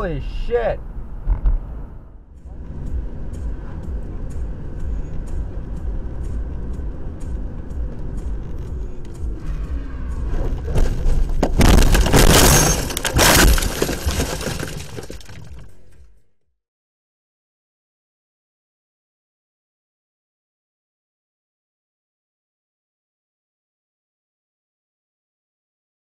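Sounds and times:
car road noise: 0.0 - 16.0
car crashing into bushes: 10.6 - 15.7.

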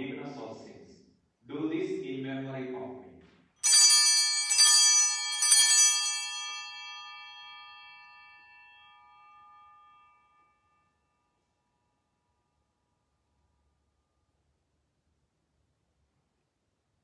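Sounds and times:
altar bells ringing: 3.6 - 11.5.

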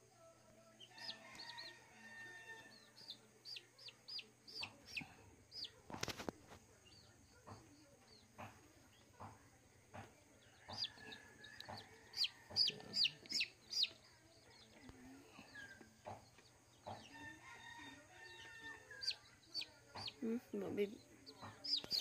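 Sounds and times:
chick peeping: 0.8 - 22.0
rooster crowing: 0.9 - 2.8, 17.2 - 19.1.

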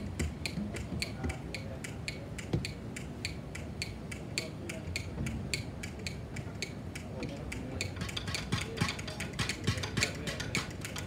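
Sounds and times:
sharp percussion taps: 0.0 - 11.0.

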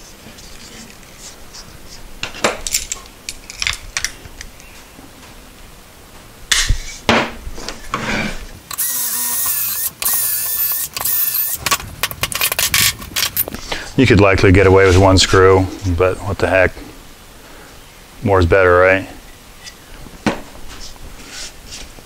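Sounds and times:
cordless drill whine: 8.7 - 13.5.

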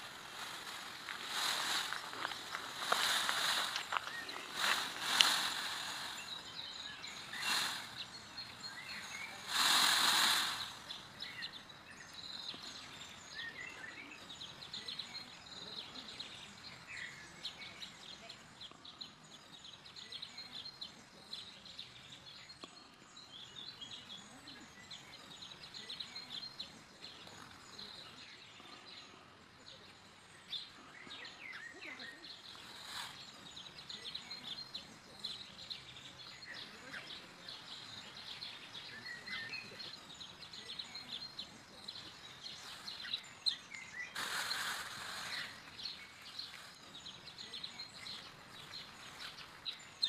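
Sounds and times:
rustling noise: 0.0 - 11.4, 32.4 - 34.5, 41.0 - 47.0
birds chirping: 0.0 - 50.0.

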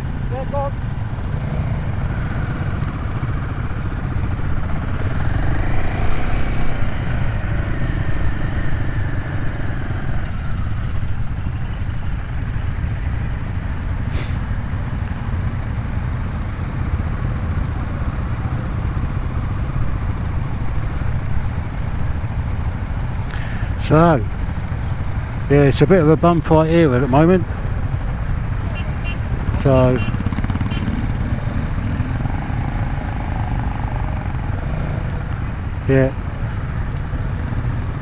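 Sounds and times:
motorcycle engine running: 0.0 - 14.0, 26.0 - 38.0.

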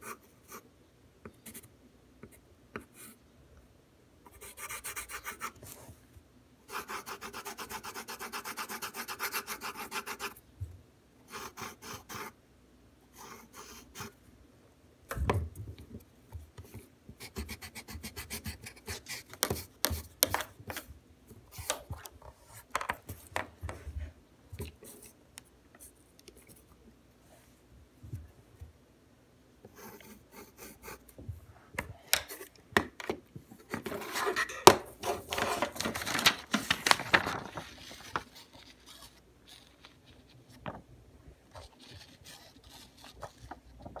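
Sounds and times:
pencil scratching on paper: 4.3 - 5.6, 6.7 - 10.4, 11.3 - 12.4.

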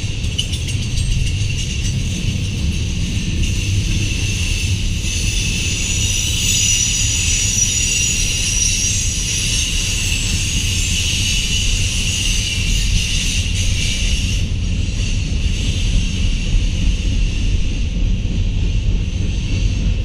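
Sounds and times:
high-pitched whine: 0.0 - 15.2
train wheels rumbling on rails: 0.0 - 20.0.

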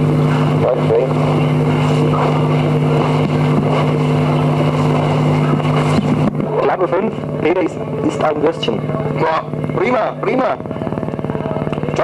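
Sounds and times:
steady mechanical hum: 0.0 - 12.0.

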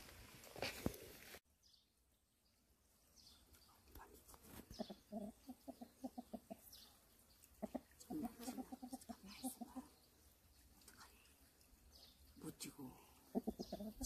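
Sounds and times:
rooster clucking: 7.6 - 9.1, 13.3 - 14.0.

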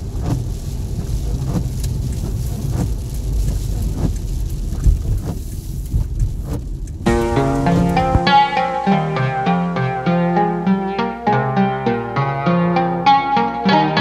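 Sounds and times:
windshield wipers sweeping: 0.0 - 10.8
car road and engine rumble: 0.0 - 11.0.

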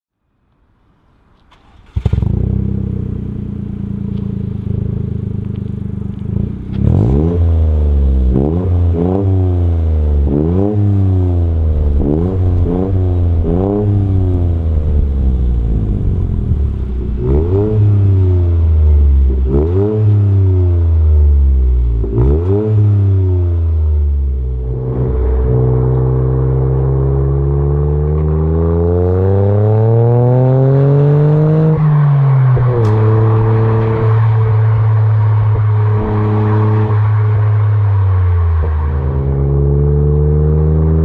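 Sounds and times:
car engine idling: 1.4 - 9.0, 11.1 - 19.6, 23.0 - 28.4
car engine revving: 1.4 - 41.0.

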